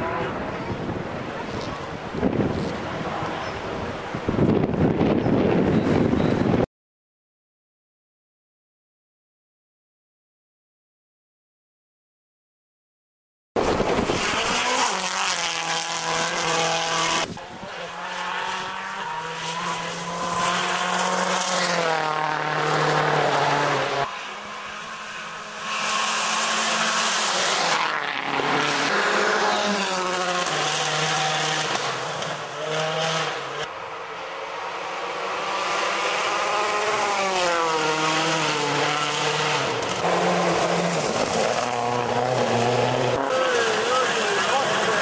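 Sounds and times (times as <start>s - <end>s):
rally car engines revving: 13.6s - 45.0s.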